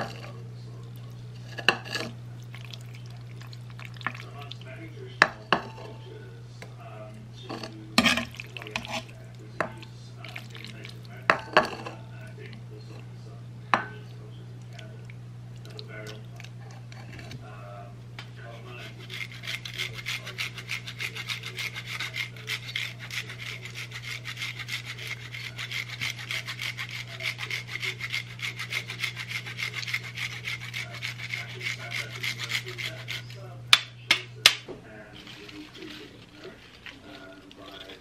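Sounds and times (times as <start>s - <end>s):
cheese grating rasps: 0.0s - 6.0s, 7.4s - 13.1s, 18.4s - 33.6s, 35.0s - 38.0s.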